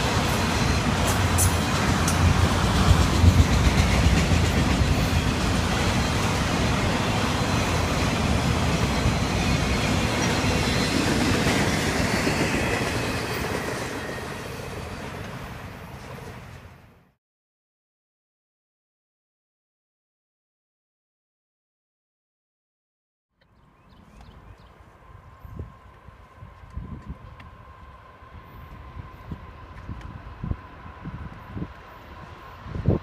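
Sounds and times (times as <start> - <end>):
freight train wheels clattering: 0.0 - 15.4.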